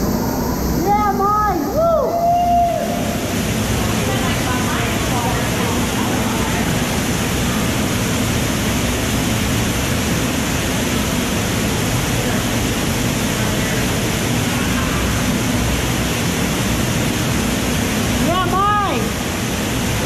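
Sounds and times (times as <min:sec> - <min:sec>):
waterfall rushing into a pool: 0:00.0 - 0:20.0.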